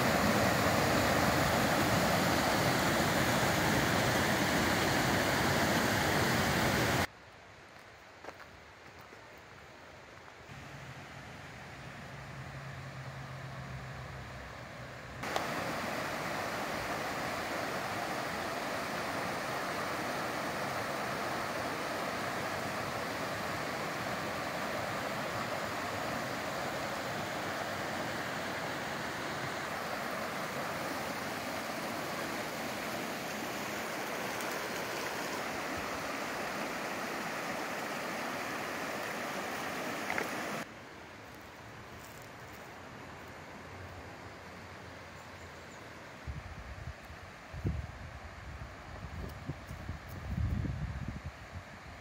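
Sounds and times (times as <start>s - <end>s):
stream rushing over rocks: 0.0s - 7.1s, 15.2s - 40.8s.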